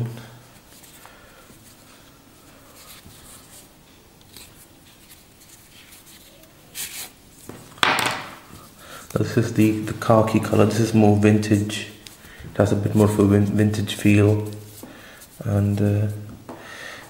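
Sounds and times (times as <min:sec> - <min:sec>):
fabric strap rustling and scraping: 0:02.7 - 0:07.7.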